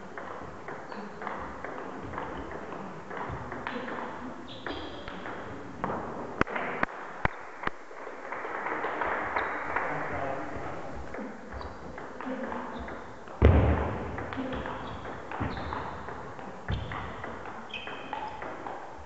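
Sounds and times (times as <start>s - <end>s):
table tennis ball bouncing: 0.1s - 7.4s.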